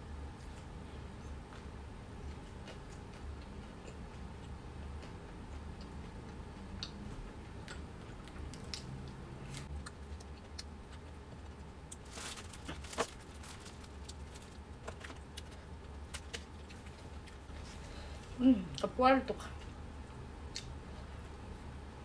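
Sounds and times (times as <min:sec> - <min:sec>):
steady low hum: 0:00.0 - 0:22.0
chewing: 0:01.5 - 0:17.6
plastic bag crinkling: 0:11.9 - 0:17.0.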